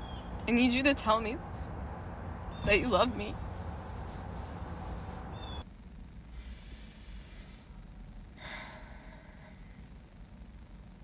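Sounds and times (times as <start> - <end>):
low steady background noise: 0.0 - 11.0
person breathing: 8.4 - 9.9.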